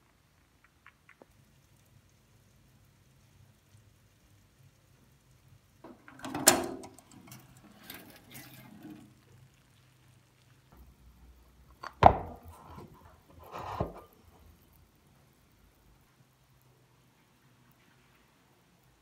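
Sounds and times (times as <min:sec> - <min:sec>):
oven door click: 0:05.9 - 0:08.4
glass dish scraping and rattling: 0:05.9 - 0:09.2, 0:12.0 - 0:14.1
dish knocking on wooden table: 0:12.0 - 0:12.4.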